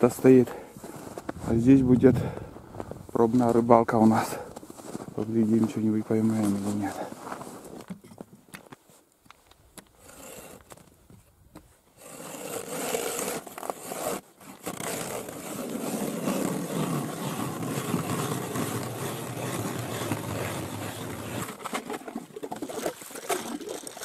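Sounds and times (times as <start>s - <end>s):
ice auger grinding ice: 10.0s - 10.9s, 11.9s - 24.0s.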